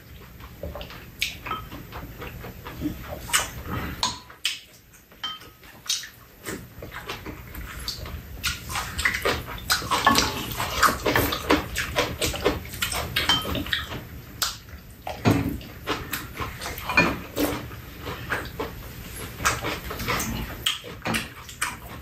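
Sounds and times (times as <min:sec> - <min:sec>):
wet chewing and slurping: 0:00.0 - 0:22.0
utensils tapping dishes: 0:04.0 - 0:06.1, 0:09.9 - 0:17.6.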